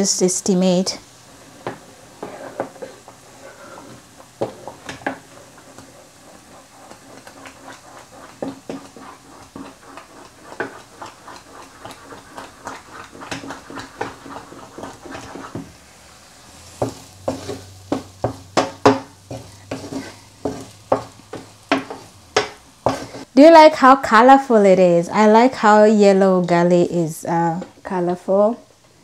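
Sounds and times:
spoon scraping in a pot: 0:01.2 - 0:15.7, 0:16.6 - 0:23.3.

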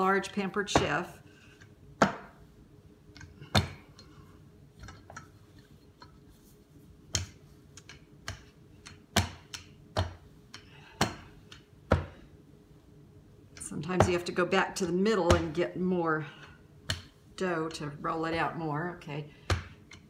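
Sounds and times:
rolling pin knocking on board: 0:02.0 - 0:02.4.

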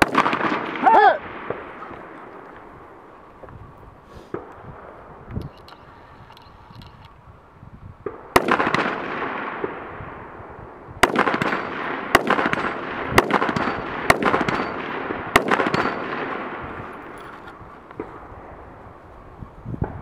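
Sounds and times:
rifle shots: 0:00.0 - 0:02.5, 0:08.1 - 0:10.2, 0:11.0 - 0:16.8
echo rolling across range: 0:00.0 - 0:20.0.

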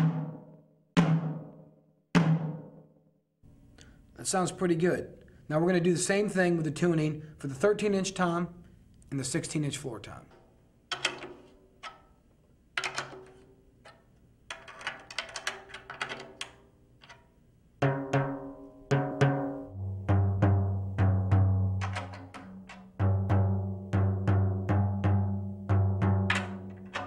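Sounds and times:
floor tom strikes: 0:00.0 - 0:01.6, 0:02.2 - 0:02.8, 0:17.8 - 0:27.0.

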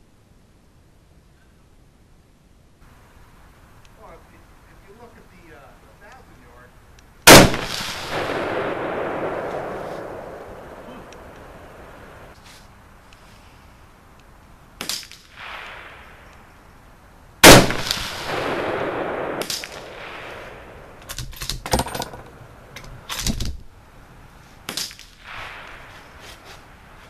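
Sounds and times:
rifle shot with echo: 0:07.3 - 0:12.4, 0:14.8 - 0:16.3, 0:17.4 - 0:21.1
faint sharp cracks and clicks: 0:09.4 - 0:10.1, 0:14.1 - 0:16.5, 0:19.4 - 0:20.2, 0:24.7 - 0:25.8.

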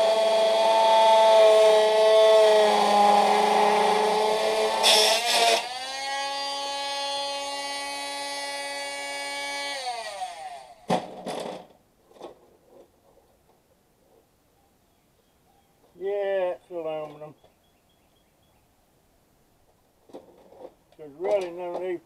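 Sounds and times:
power tool motor running: 0:00.0 - 0:10.8.

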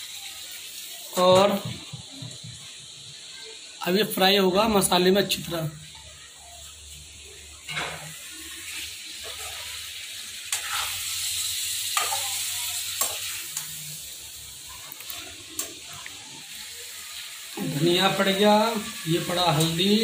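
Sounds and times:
chicken sizzling in a pan: 0:00.0 - 0:20.0
metal spoon scraping a pan: 0:07.6 - 0:09.8, 0:10.4 - 0:13.8.

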